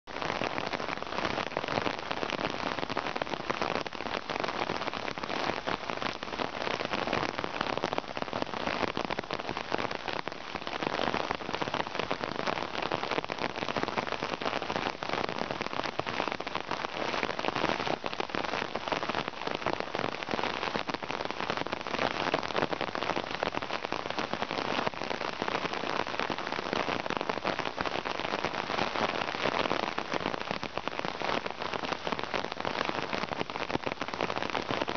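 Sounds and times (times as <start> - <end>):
rain on a tarp: 0.0 - 34.9.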